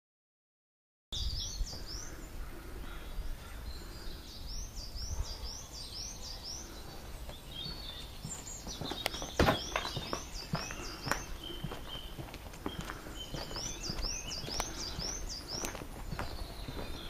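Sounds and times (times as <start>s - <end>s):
low outdoor background noise: 1.2s - 17.0s
small bird singing high chirps: 1.2s - 17.0s.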